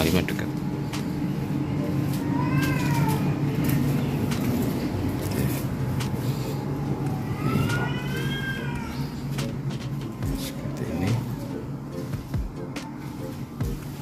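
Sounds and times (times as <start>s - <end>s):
cat meowing: 2.0s - 3.8s, 7.0s - 9.3s.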